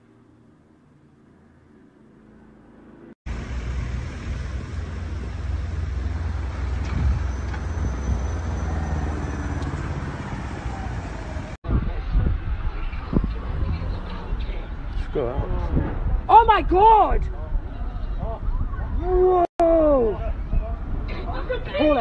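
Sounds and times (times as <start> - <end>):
road traffic rumble: 0.0 - 16.3.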